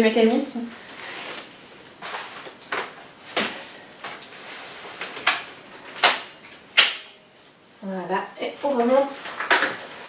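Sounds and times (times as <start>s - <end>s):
handling rustle: 0.8s - 5.9s.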